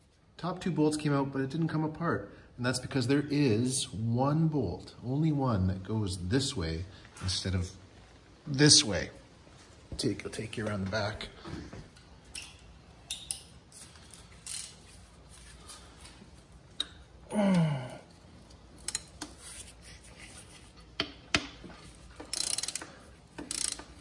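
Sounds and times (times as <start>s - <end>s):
ratchet wrench clicking: 14.4s - 14.8s, 18.8s - 19.4s, 22.2s - 24.0s.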